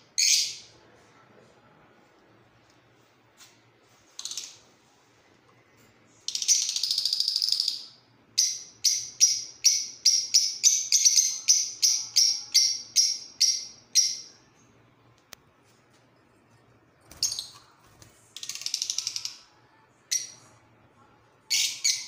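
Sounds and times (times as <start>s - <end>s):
lovebirds chirping and chattering: 0.2s - 0.7s, 8.4s - 14.3s, 21.5s - 22.0s.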